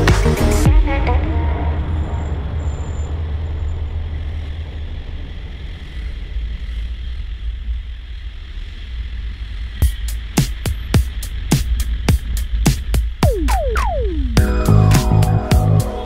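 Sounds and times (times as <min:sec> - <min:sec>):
wind and road rumble: 0:00.0 - 0:16.0
traffic hiss: 0:01.0 - 0:13.3.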